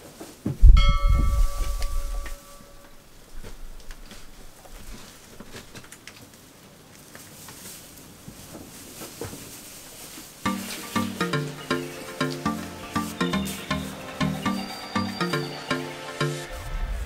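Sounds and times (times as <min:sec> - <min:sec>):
music: 0:10.4 - 0:17.0.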